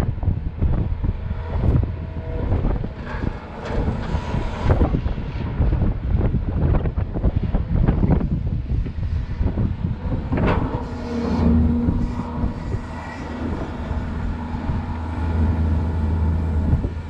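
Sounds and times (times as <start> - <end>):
excavator diesel engine under load: 0.1 - 17.0.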